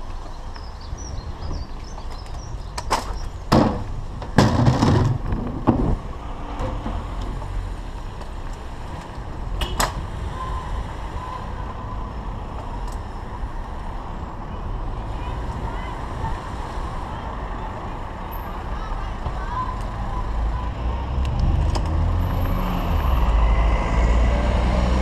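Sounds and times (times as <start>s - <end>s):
road rumble: 0.0s - 25.0s
wind on microphone: 0.8s - 3.3s
sharp knocks and rattles: 2.9s - 6.0s.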